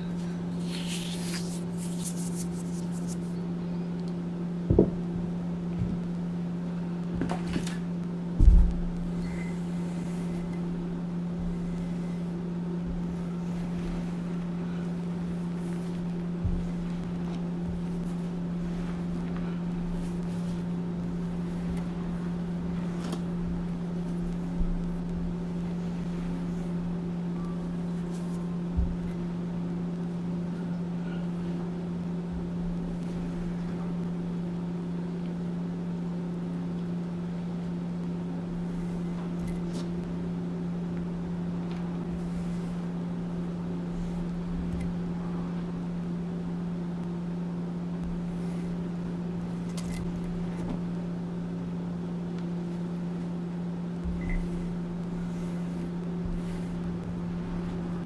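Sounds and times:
steady low hum: 0.0 - 58.0
chalk crunching in a stone mortar: 0.6 - 3.4.

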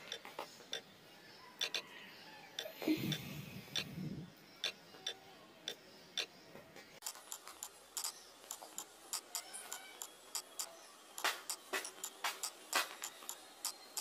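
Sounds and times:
typing on touchscreen keyboard: 7.0 - 14.0.

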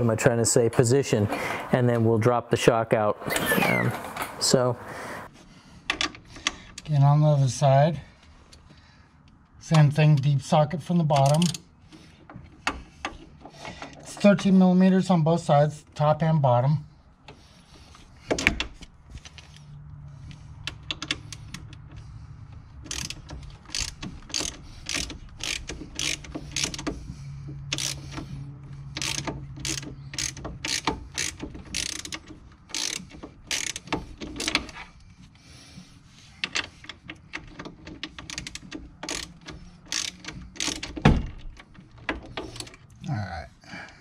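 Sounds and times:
socket ratchet clicking: 22.8 - 34.8, 36.4 - 42.9.

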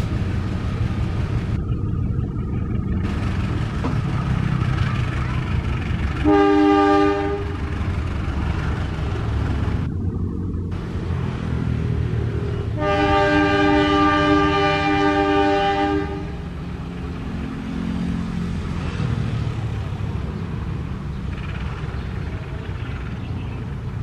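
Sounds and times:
train rumble: 0.0 - 24.0
train horn chord: 6.2 - 7.6, 12.8 - 16.5.

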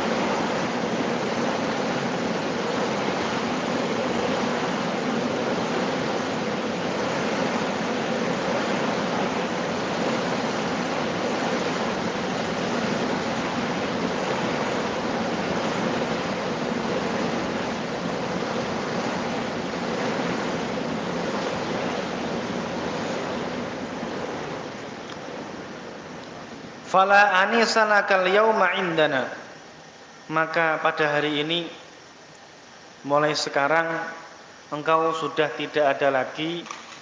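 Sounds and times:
steady rushing noise: 0.0 - 31.5.

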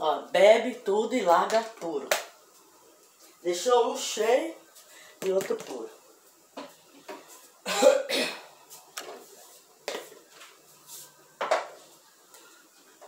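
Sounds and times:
person coughing: 7.6 - 8.5.

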